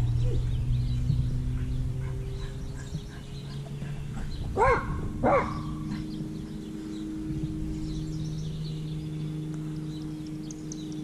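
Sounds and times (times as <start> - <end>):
steady low hum: 0.0 - 11.0
dog barking: 3.6 - 6.0.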